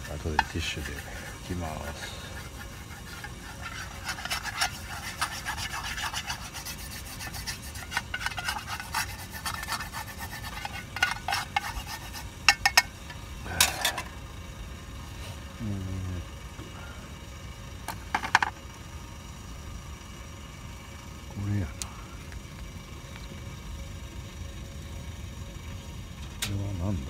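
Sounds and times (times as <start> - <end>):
rubber spatula scraping a pan: 0.0 - 12.9.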